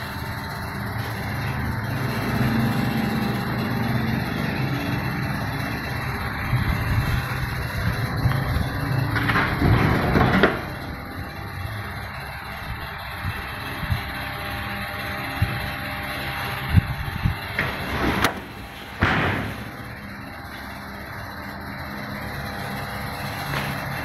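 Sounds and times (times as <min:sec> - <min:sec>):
steady background noise: 0:00.0 - 0:24.0
oven knocks: 0:09.1 - 0:10.7, 0:17.5 - 0:19.8.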